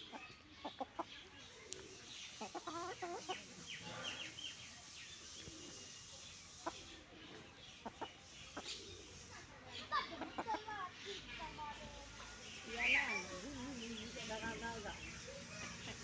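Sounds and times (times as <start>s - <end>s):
hens clucking: 0.0s - 4.4s, 5.3s - 16.0s.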